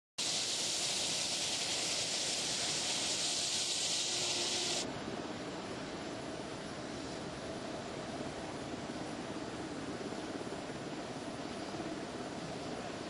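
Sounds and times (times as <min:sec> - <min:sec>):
jet engine hiss: 0:00.2 - 0:04.9.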